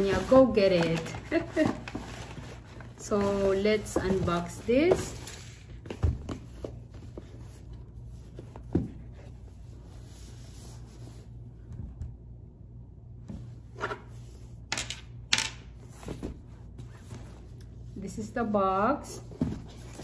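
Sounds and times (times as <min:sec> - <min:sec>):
cardboard packaging rustling: 0:00.0 - 0:07.7.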